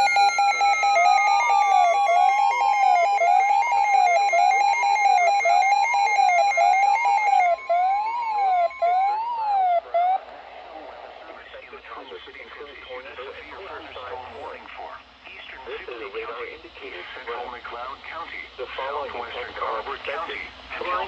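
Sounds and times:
held alarm tone: 0:00.0 - 0:10.2
rapid beeping: 0:00.0 - 0:10.2
rising and falling siren tone: 0:00.0 - 0:10.3.

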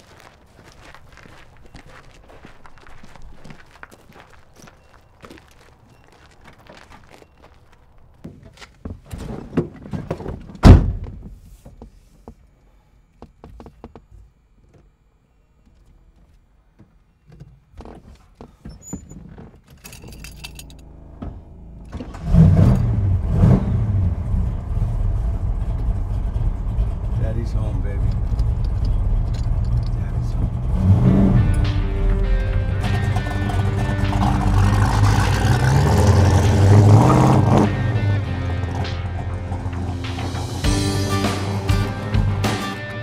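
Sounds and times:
footsteps: 0:00.0 - 0:12.5
loud thunk: 0:09.1 - 0:11.3
keys jangling: 0:19.7 - 0:20.9, 0:28.1 - 0:30.1
car engine starting and running: 0:19.7 - 0:43.0.

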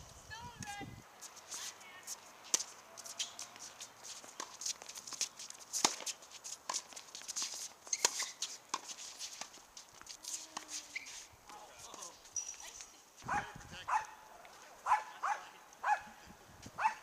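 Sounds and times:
shoe scuffs on court: 0:00.6 - 0:12.7
racket striking ball: 0:05.8 - 0:06.9.

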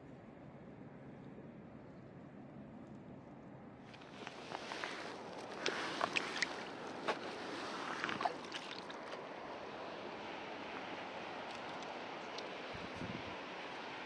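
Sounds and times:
wind noise on microphone: 0:12.7 - 0:13.6.

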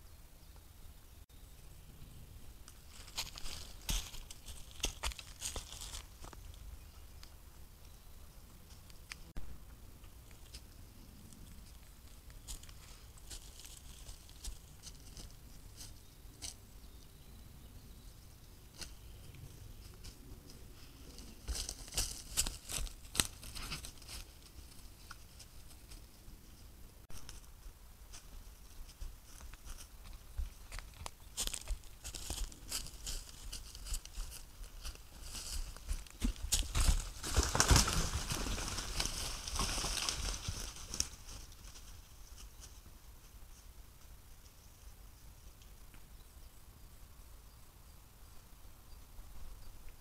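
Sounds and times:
deer stepping through dry leaves: 0:02.9 - 0:06.4, 0:30.7 - 0:42.0.

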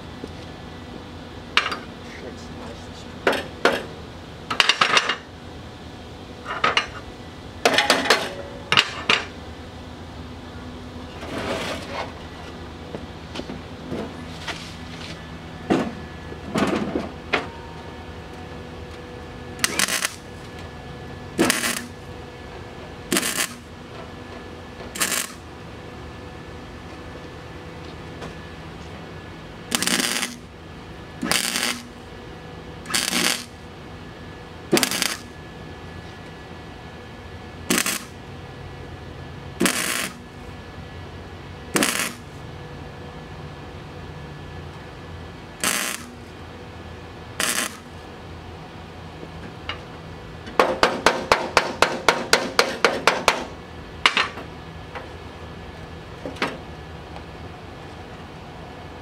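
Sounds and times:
hammer clanging on sheet metal: 0:50.6 - 0:53.5.

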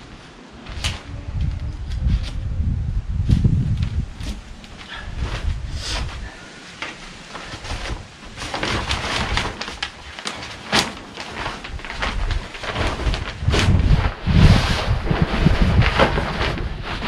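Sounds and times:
plastic sheeting rustling: 0:00.0 - 0:17.0
wind rumbling on microphone: 0:00.0 - 0:17.0.

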